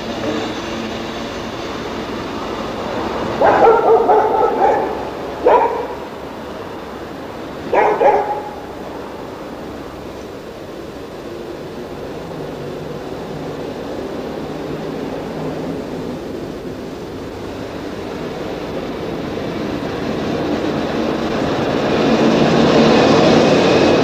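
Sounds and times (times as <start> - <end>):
steady background noise: 0.0 - 24.0
dog barking: 3.3 - 6.1, 7.7 - 8.8.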